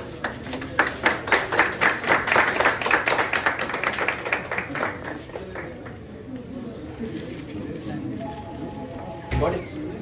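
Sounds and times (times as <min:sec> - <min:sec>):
crowd applauding: 0:00.0 - 0:06.0.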